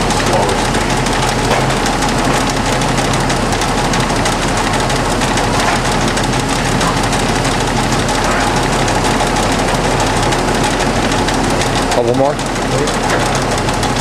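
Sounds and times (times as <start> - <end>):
constant low hum: 0.0 - 14.0
lathe running: 0.0 - 14.0.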